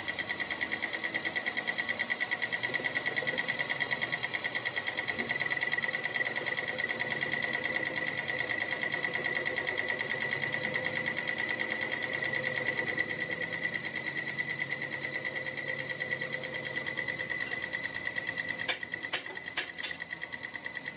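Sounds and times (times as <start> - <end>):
metal lathe whine: 0.0 - 20.9.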